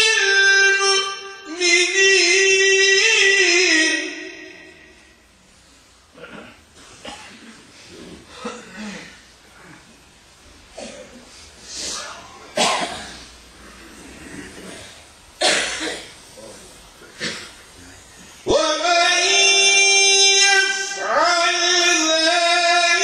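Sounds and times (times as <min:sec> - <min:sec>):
people coughing: 0:06.1 - 0:09.9, 0:10.7 - 0:17.9.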